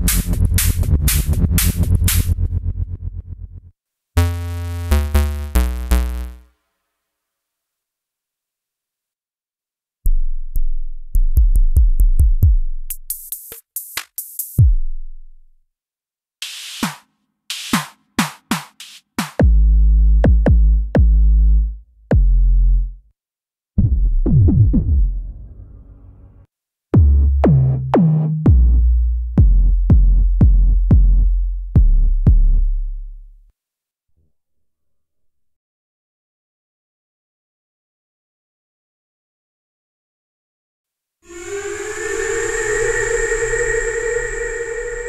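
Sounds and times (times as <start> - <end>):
pitched bass hits: 0.0 - 3.5, 27.0 - 33.3
hissy cymbal-like noise hits: 41.3 - 45.0.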